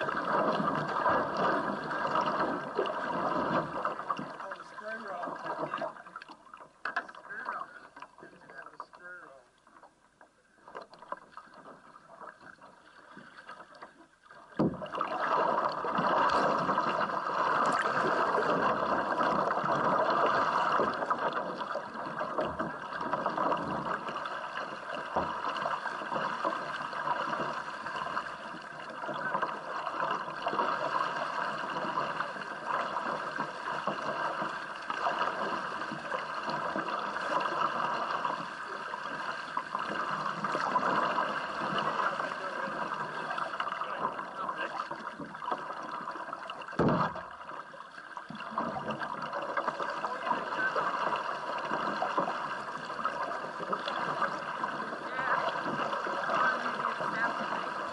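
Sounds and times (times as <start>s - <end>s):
water splashing against kayak: 0.0s - 57.9s
thump on kayak: 14.5s - 24.1s, 24.9s - 28.2s, 46.7s - 47.6s.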